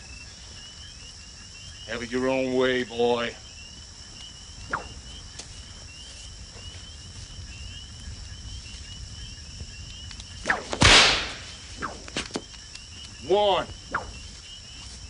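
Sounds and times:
crickets chirping: 0.0s - 15.0s
whip crack: 4.7s - 5.0s, 10.4s - 12.5s, 13.9s - 14.3s.

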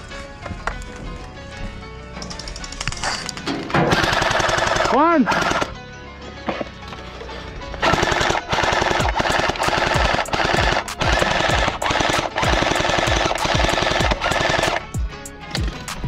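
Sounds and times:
automatic gunfire bursts: 3.9s - 5.7s, 7.8s - 14.8s.

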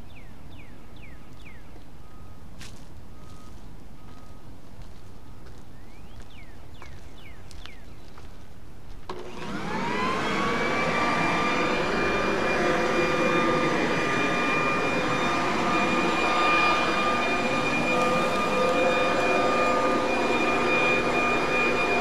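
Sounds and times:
electric leaf blower whining: 9.1s - 22.0s.

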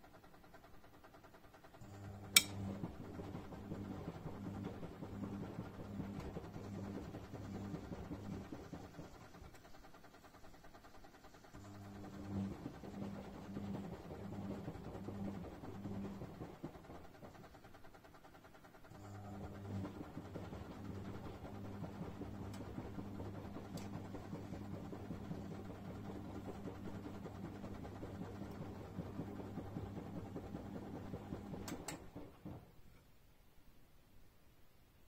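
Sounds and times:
washing machine drum motor humming: 0.0s - 32.8s.

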